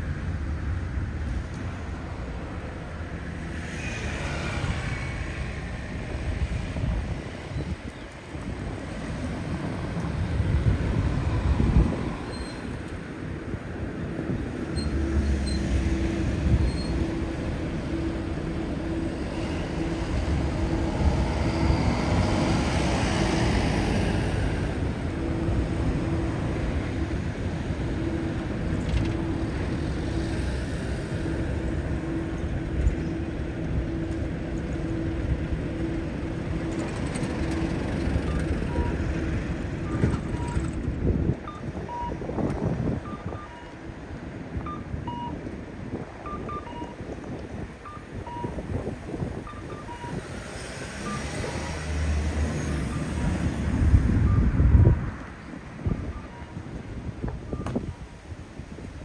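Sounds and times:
cars passing: 0:00.0 - 0:59.0
low pulsing tone: 0:14.9 - 0:23.0, 0:24.2 - 0:40.8
short high beeps: 0:43.0 - 0:43.8, 0:46.3 - 0:47.0, 0:56.0 - 0:56.6.

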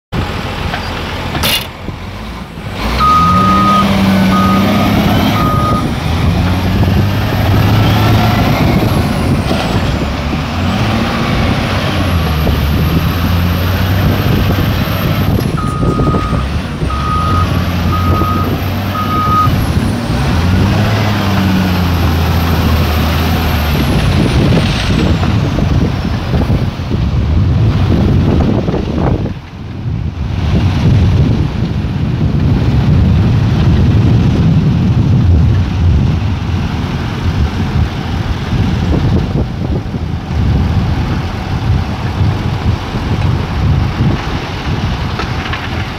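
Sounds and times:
wheel loader diesel engine: 0:00.1 - 0:45.9
reversing alarm beeps: 0:03.0 - 0:05.9, 0:15.6 - 0:19.5.

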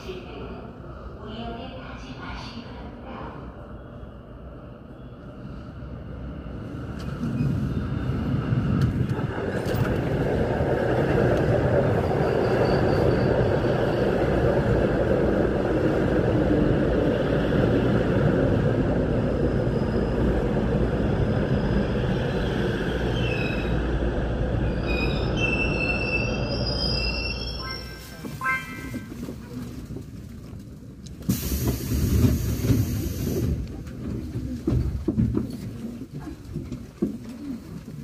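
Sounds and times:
subway train rumble: 0:00.0 - 0:38.0
wheels rolling on rail: 0:05.9 - 0:38.0
high brake squeal: 0:12.2 - 0:13.4, 0:24.8 - 0:28.9.

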